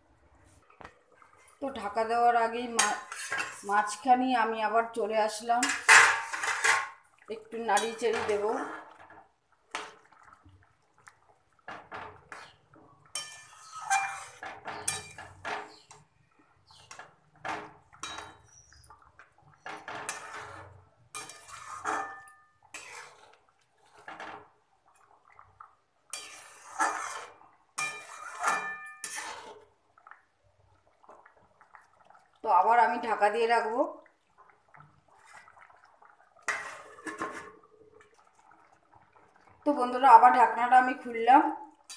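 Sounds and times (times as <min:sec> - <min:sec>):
metal spatula scraping metal pan: 0:02.6 - 0:04.0, 0:05.6 - 0:07.0, 0:07.7 - 0:08.9, 0:12.3 - 0:16.1, 0:19.7 - 0:24.3, 0:26.1 - 0:29.7, 0:36.5 - 0:37.6.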